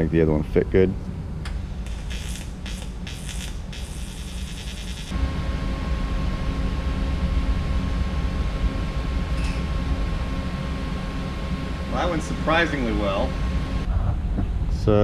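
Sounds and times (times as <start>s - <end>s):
steady low hum: 0.0s - 15.0s
welding arc buzzing: 1.7s - 13.9s.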